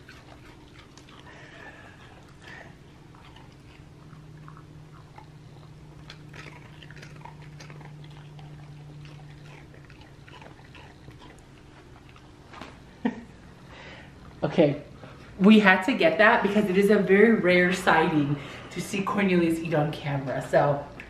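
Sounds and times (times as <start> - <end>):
dog chewing biscuit crunches: 0.0 - 12.8.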